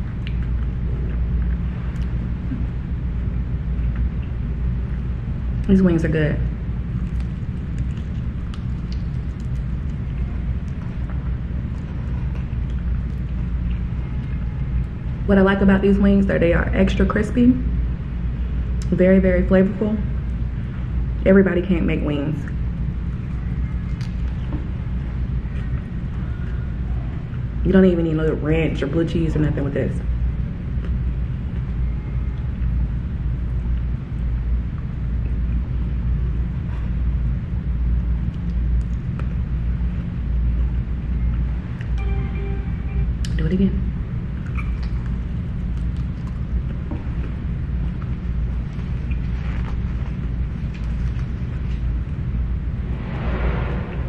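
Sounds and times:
low background rumble: 0.0 - 54.0
chewing crispy chicken: 6.6 - 14.4, 44.4 - 51.8
low rumble: 49.7 - 54.0.

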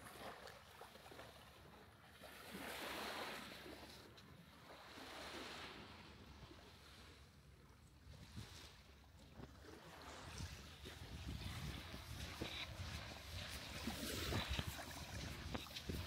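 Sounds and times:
small waves washing in: 0.0 - 16.0.

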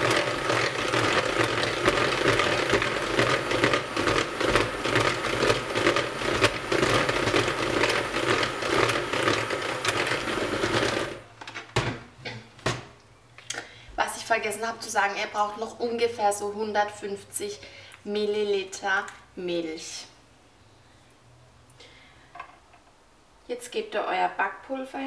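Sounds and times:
electric hand mixer running: 0.0 - 11.2.

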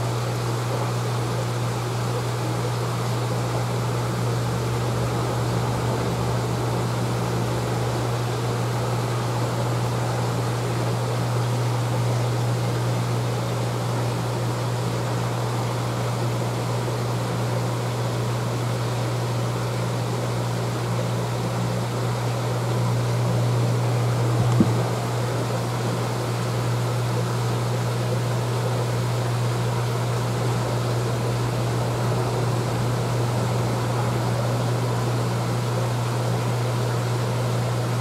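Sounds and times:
pump hum: 0.0 - 38.0.

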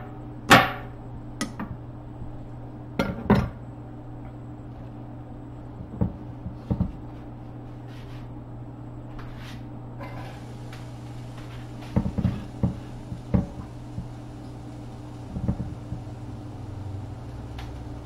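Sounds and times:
knocks of kitchen work: 0.0 - 1.7, 3.0 - 3.6, 5.8 - 7.0, 11.5 - 14.2, 15.3 - 16.1
steady low hum: 0.0 - 18.0.

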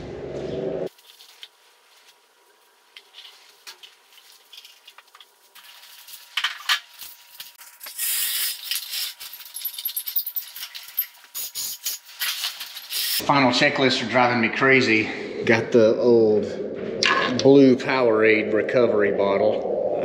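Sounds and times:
metal tools clinking and rattling: 6.2 - 11.3
hiss: 11.4 - 12.0, 12.9 - 13.2.

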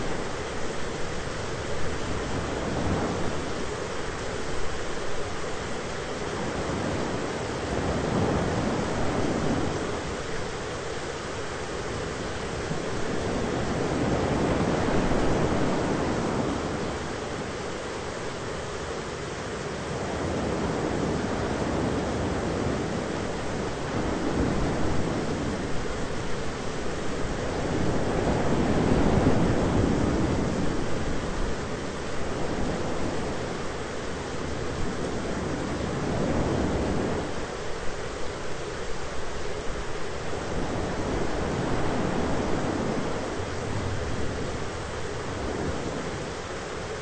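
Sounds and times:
thunderstorm rushing noise: 20.1 - 37.9.

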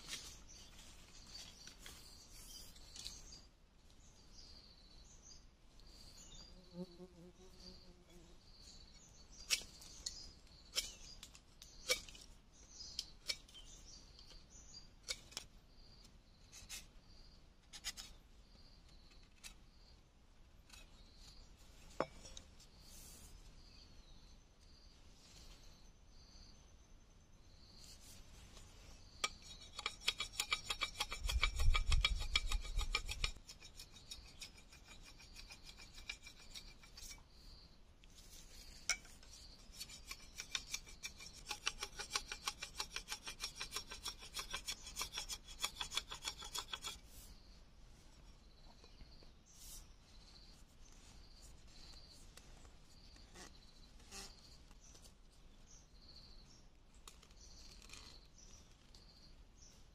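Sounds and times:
knife scraping bamboo pole: 9.3 - 12.3, 13.0 - 14.4, 15.0 - 15.5, 17.6 - 18.2, 27.8 - 37.4, 38.1 - 47.4, 53.2 - 54.6, 57.0 - 58.6.

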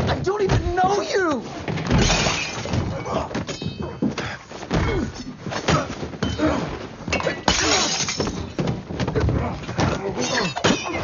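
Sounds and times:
glass shattering: 1.9 - 2.9, 6.2 - 8.7, 10.2 - 11.0
fight hits and thuds: 4.6 - 11.0.

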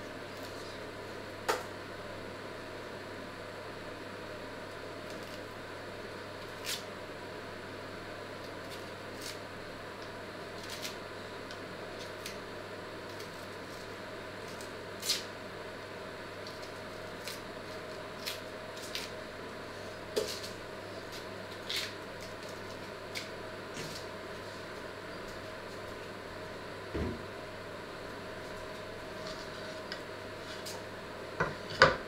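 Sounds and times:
steady low hum: 0.0 - 32.0
onion skin tearing: 5.1 - 5.4, 6.4 - 6.9, 8.4 - 9.4, 10.6 - 12.4, 13.0 - 15.3, 16.4 - 19.2, 20.1 - 24.1.

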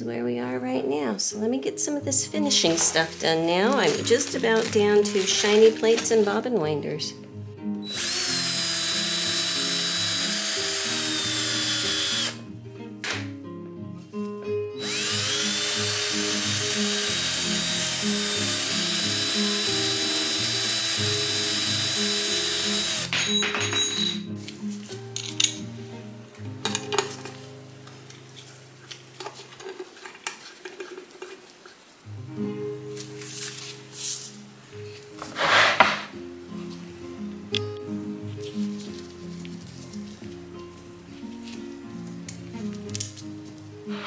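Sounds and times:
background music: 0.0 - 29.2, 32.1 - 44.0
cordless drill whirring: 7.8 - 12.4, 14.8 - 23.1.

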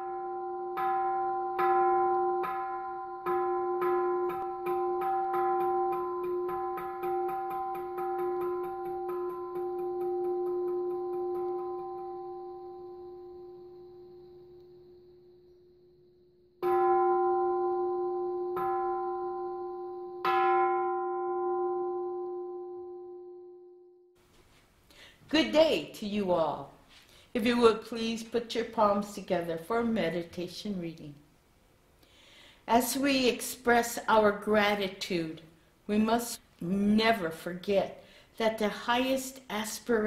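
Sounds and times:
temple bell strikes ringing: 0.0 - 13.1, 16.6 - 22.6.

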